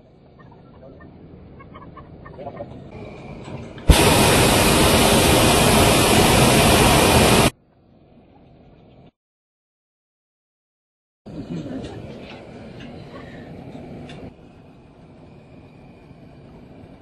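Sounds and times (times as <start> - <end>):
propane burner blast: 2.9 - 7.6.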